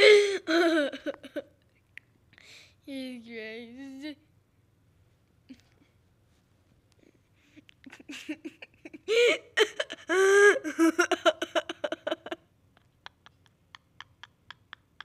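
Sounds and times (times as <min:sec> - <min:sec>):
person giggling and squealing: 0:07.8 - 0:15.0.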